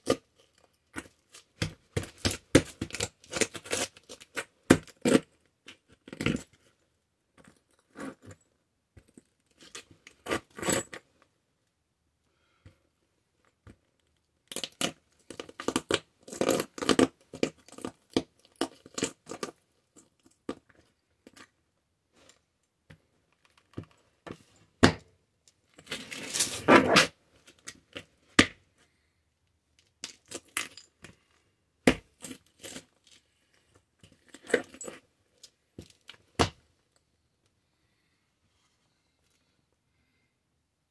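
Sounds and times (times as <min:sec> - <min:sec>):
boot heel grinding toy on concrete: 0:26.0 - 0:27.2.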